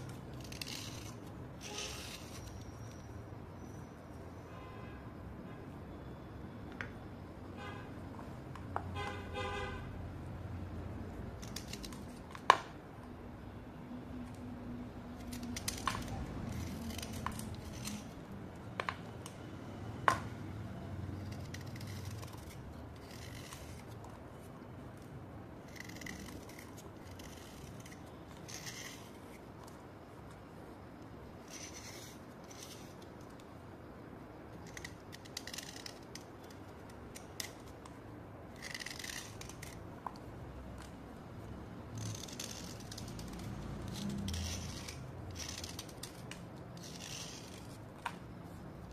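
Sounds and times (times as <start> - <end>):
blade scraping slate: 0.1 - 3.0, 15.2 - 18.2, 21.2 - 24.6, 25.6 - 29.5, 31.4 - 33.1, 34.6 - 37.7, 38.5 - 39.8, 42.0 - 48.1.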